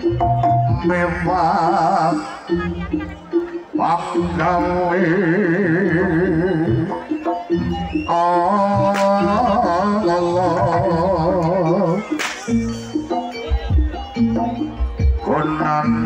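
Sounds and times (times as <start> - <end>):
wavering lead melody: 0.0 - 16.0
drums and gongs: 10.5 - 15.4.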